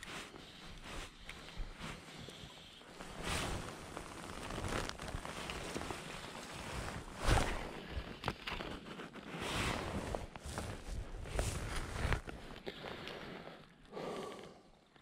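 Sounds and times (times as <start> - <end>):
jacket rustling and knocks: 3.0 - 8.8.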